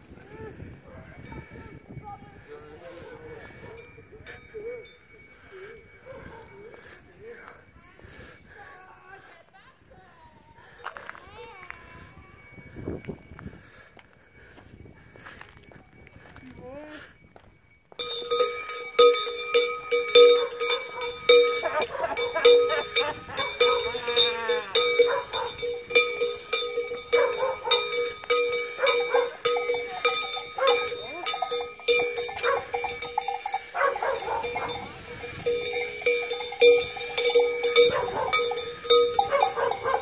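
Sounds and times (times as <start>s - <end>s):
large cowbells clanging rapidly: 0.0s - 8.9s, 14.5s - 40.0s
people shouting: 21.5s - 25.6s.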